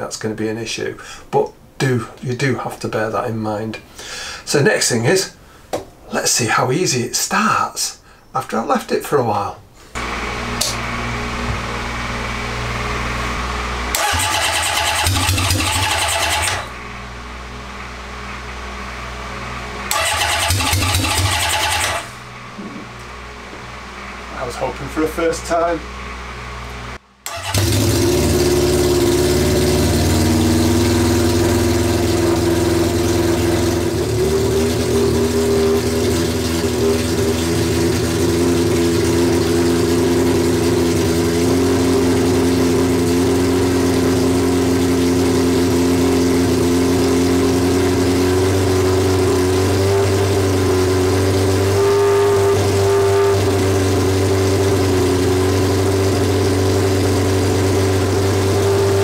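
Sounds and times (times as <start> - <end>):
motorcycle engine running loud: 10.0 - 23.0, 27.4 - 59.0.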